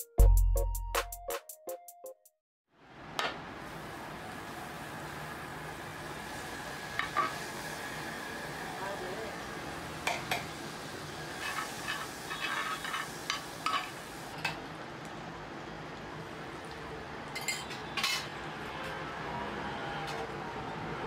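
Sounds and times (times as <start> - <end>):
butter sizzling on a griddle: 3.6 - 14.4
metal utensils clinking: 11.4 - 14.0, 17.3 - 18.4.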